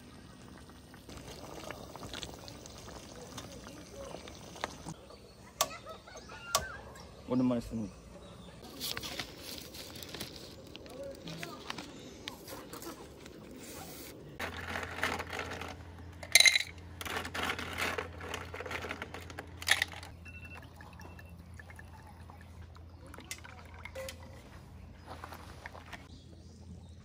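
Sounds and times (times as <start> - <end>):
liquid pouring in spurts: 0.0 - 5.0
faint handling sounds: 8.6 - 20.1.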